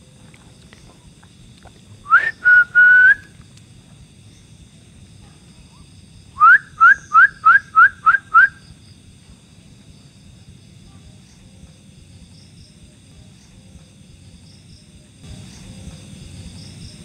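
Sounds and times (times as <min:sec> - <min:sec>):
loud whistled calls: 0:02.0 - 0:03.4, 0:06.3 - 0:08.8.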